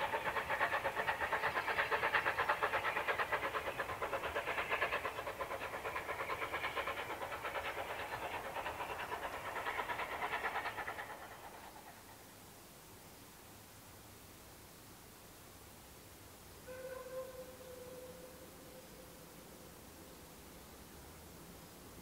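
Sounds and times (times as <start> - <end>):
steam locomotive exhaust beats: 0.0 - 12.7.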